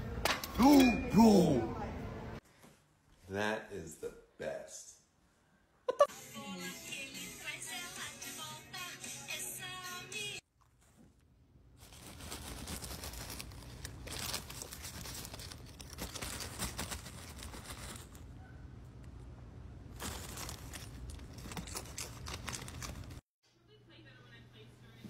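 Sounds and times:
plastic bag crinkling: 11.7s - 18.3s, 19.9s - 23.2s
cereal rattling: 11.8s - 18.2s, 20.0s - 23.2s.

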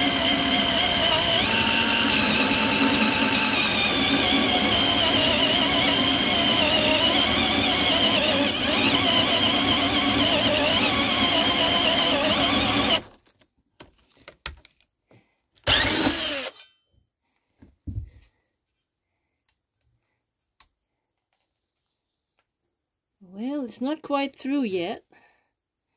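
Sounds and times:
drill with hole saw cutting wood: 0.0s - 13.2s, 15.6s - 16.6s.

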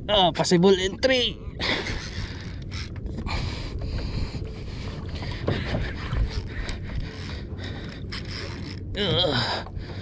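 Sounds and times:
steady low rumble: 0.0s - 10.0s
fishing reel clicking and scraping: 1.7s - 3.4s, 6.3s - 8.9s.

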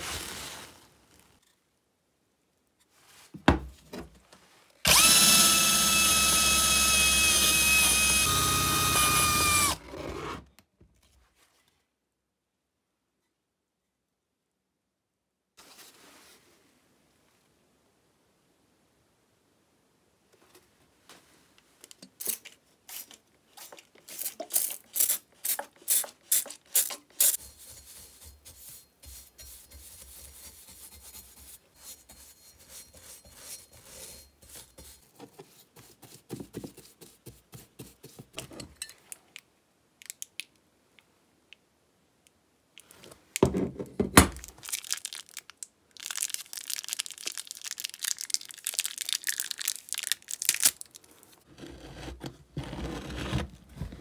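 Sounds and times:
bristle brush scrubbing steel: 22.9s - 38.3s.

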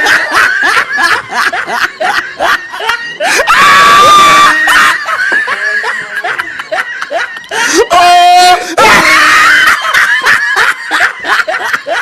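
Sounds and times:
people laughing: 0.0s - 12.0s
man screaming in fright: 3.2s - 5.2s, 7.5s - 10.0s.

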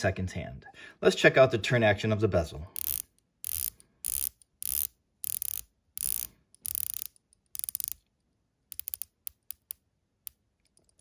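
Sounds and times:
watch bezel ratcheting clicks: 2.8s - 8.0s, 8.7s - 11.0s.

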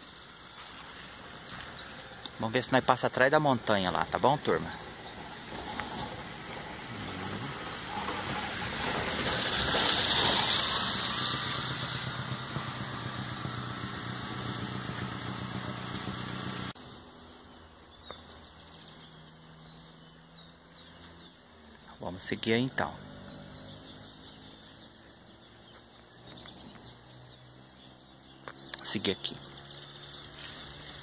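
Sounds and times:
birds chirping: 0.0s - 31.0s
vehicle engine running: 0.0s - 31.0s
rushing noise: 3.8s - 16.8s.

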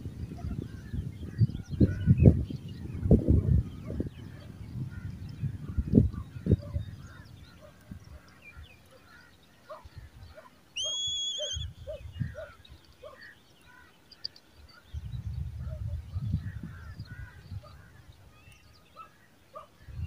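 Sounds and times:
eagle chicks calling: 0.4s - 14.4s
loud shrill whistle: 10.8s - 11.7s.

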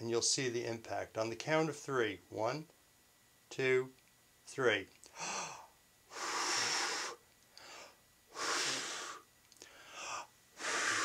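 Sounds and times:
man blowing out hard: 5.2s - 7.2s, 8.3s - 9.2s, 10.0s - 11.0s.

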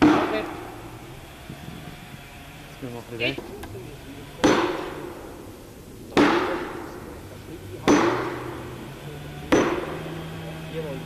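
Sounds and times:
hammer striking wedge echoing: 0.0s - 0.8s, 4.4s - 5.4s, 6.1s - 7.1s, 7.8s - 10.4s.

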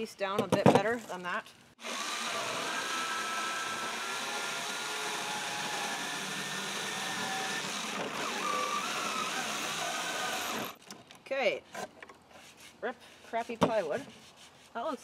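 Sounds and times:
jigsaw cutting plywood: 1.8s - 10.8s.

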